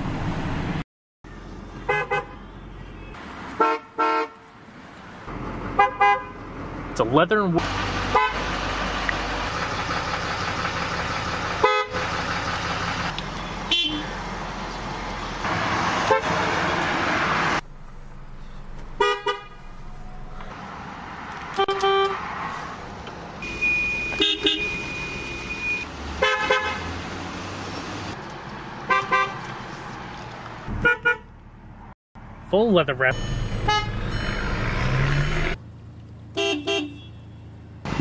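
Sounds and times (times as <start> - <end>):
car and truck horns tooting: 1.8 - 4.4, 5.8 - 6.4, 8.0 - 8.5, 11.6 - 12.2, 13.4 - 14.2, 16.0 - 16.8, 19.0 - 19.6, 21.5 - 22.3, 23.4 - 27.0, 28.8 - 29.4, 30.7 - 31.3, 33.2 - 35.6, 36.4 - 37.5
engine and cabin noise: 7.6 - 36.8.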